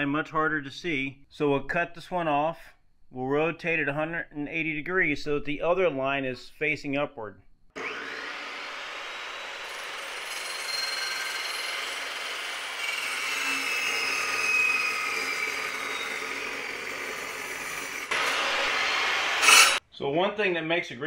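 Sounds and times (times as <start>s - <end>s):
chop saw cutting metal: 7.8s - 19.8s.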